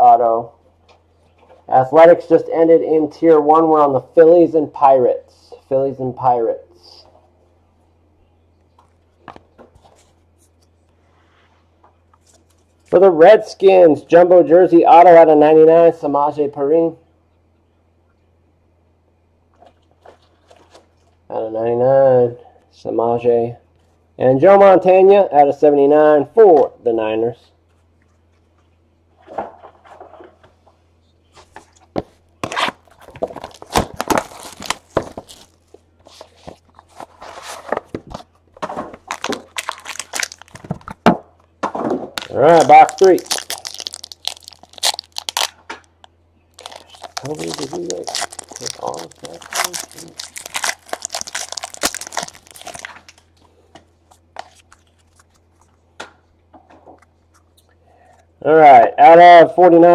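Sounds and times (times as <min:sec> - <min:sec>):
cards and cardboard rustling: 0:31.3 - 0:41.1, 0:42.2 - 0:45.5, 0:46.6 - 0:53.3, 0:54.1 - 0:55.8
foil wrapper crinkling: 0:32.4 - 0:37.8, 0:38.9 - 0:41.0, 0:42.2 - 0:53.3.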